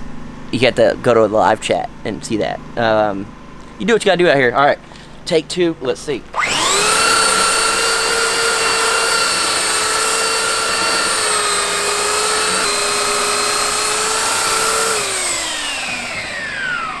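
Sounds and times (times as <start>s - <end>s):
belt sander motor whine: 6.3s - 17.0s.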